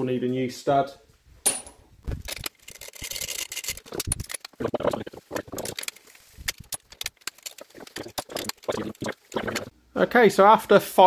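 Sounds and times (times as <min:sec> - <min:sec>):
metal tools clinking: 0:01.5 - 0:04.4.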